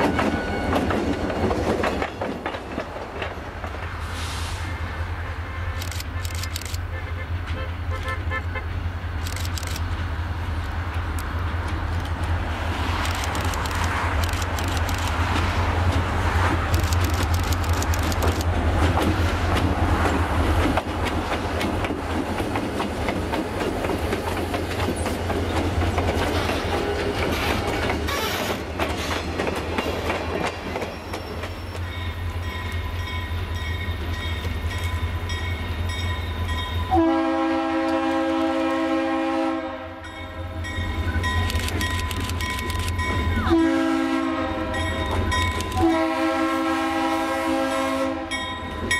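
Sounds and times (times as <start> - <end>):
wheels clicking over rail joints: 0.0 - 4.0.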